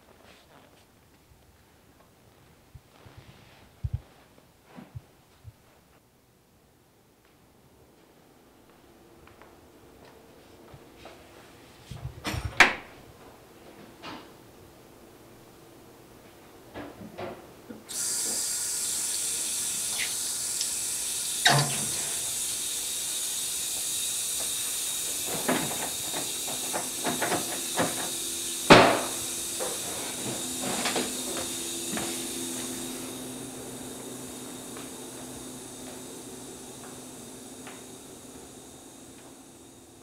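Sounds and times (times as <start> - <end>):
steady hiss: 17.9 - 40.0.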